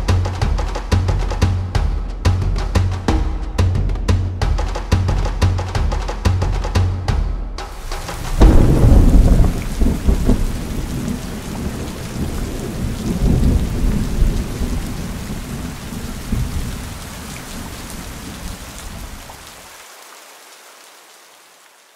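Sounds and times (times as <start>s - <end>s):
steady rain: 0.0s - 21.9s
rolling thunder: 7.8s - 19.2s.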